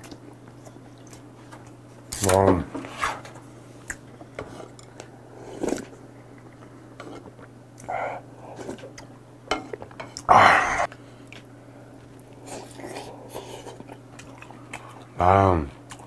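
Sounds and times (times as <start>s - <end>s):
chewing: 12.1s - 15.2s, 15.8s - 16.0s.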